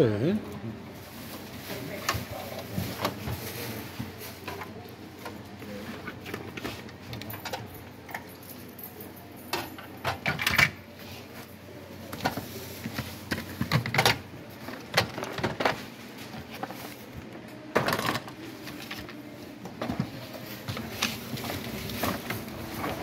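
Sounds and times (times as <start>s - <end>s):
items knocking and clattering: 9.4s - 11.0s, 12.0s - 23.0s
hands rummaging through toys: 9.5s - 23.0s.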